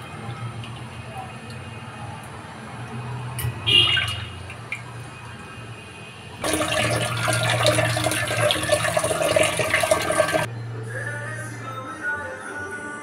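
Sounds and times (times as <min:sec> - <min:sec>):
water splashing: 0:03.6 - 0:05.7, 0:06.4 - 0:10.5.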